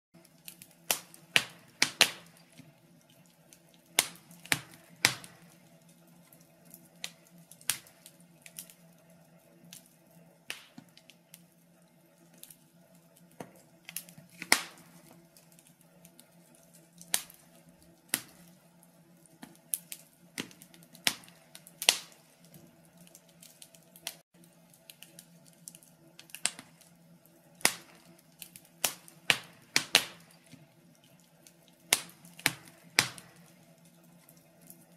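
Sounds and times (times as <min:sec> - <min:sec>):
faint steady hum: 0:00.2 - 0:34.9
wood fire crackling: 0:00.2 - 0:34.9.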